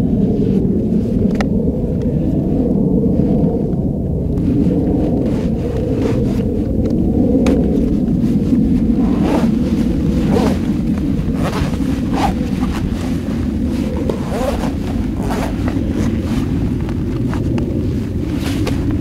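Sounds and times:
wind rumble on microphone: 0:00.0 - 0:19.0
fabric rustles: 0:04.4 - 0:06.7, 0:07.8 - 0:19.0
zipper pulls: 0:07.8 - 0:19.0.

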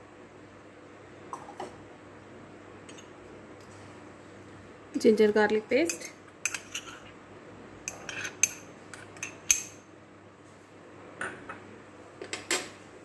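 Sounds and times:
metal spoon clinking on ceramic: 0:07.9 - 0:09.8.

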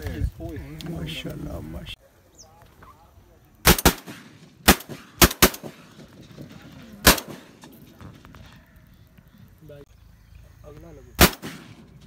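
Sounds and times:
shotgun blasts: 0:03.6 - 0:06.3, 0:07.0 - 0:07.8, 0:11.2 - 0:12.0.

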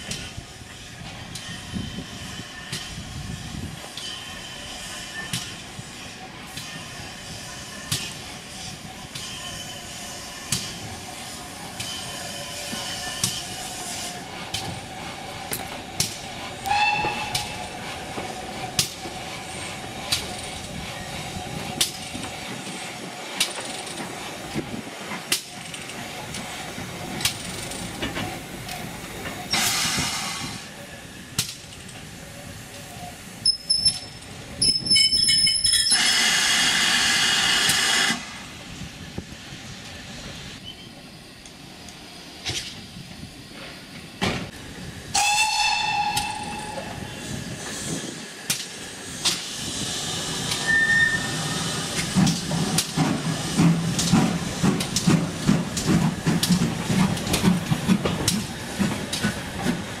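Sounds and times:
steam locomotive whistle: 0:16.6 - 0:17.8, 0:45.1 - 0:47.4, 0:50.6 - 0:51.6.

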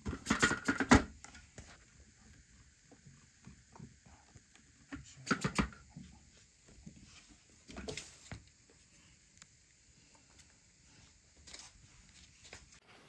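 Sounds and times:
kitten scratching and rustling: 0:10.9 - 0:12.8.

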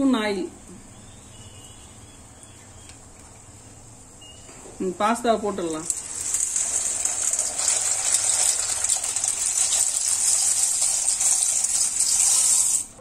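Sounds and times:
boiling water bubbling: 0:05.7 - 0:13.0
dry pasta poured into pot: 0:05.8 - 0:12.9.

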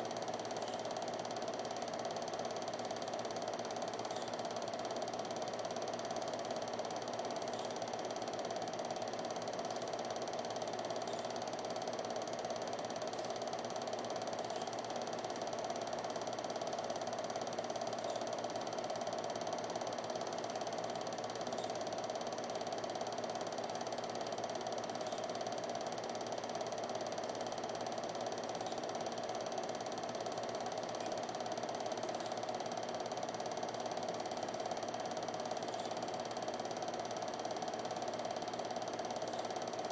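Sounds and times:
film projector whirring and rattling: 0:00.0 - 0:39.9.

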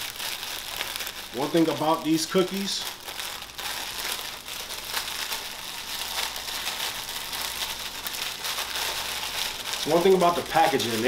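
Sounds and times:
plastic wrap crinkling: 0:00.0 - 0:11.0.

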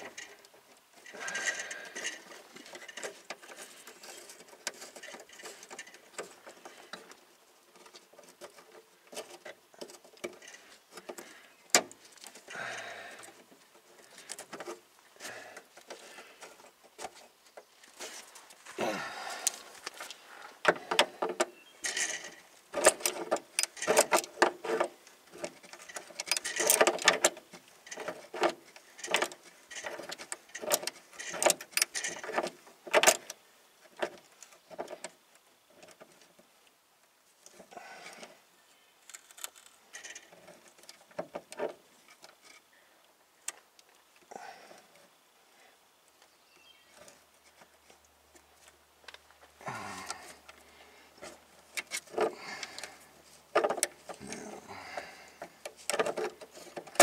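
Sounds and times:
metal clicks and rattles: 0:19.4 - 0:35.1, 0:50.0 - 0:57.0.

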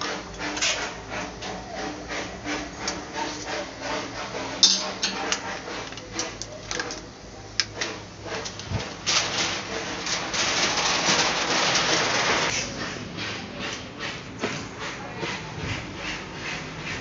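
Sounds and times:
wrench clicking and scraping on metal: 0:04.6 - 0:05.4.

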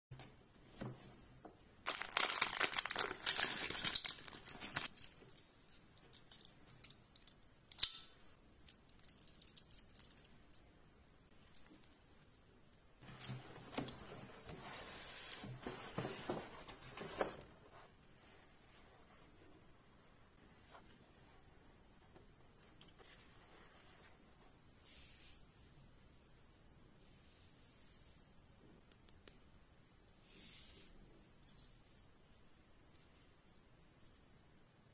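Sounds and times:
plastic wrapping crinkling and tearing: 0:01.8 - 0:04.9.

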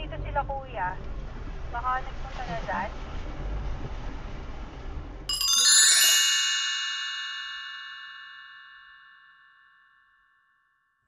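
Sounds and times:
metallic bell chime: 0:05.3 - 0:10.9.

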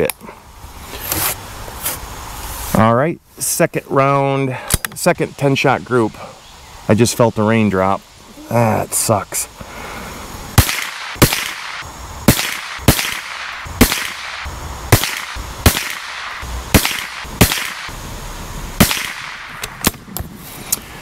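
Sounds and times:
rifle shots cracking: 0:10.6 - 0:18.0, 0:18.8 - 0:20.1.

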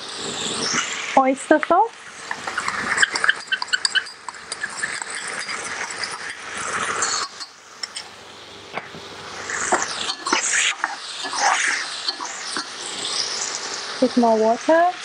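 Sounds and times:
food sizzling in a wok: 0:00.0 - 0:15.0
oil popping and crackling: 0:01.6 - 0:08.1, 0:08.7 - 0:14.0.

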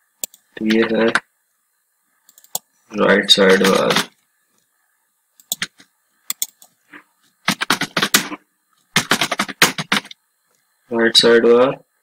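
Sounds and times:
computer keyboard typing: 0:02.3 - 0:02.6, 0:03.4 - 0:04.1, 0:05.4 - 0:06.7, 0:07.5 - 0:08.4, 0:09.0 - 0:10.2.

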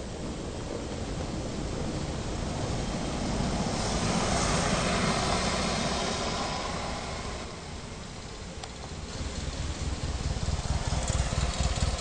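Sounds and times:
passing vehicle engine: 0:03.2 - 0:12.0.

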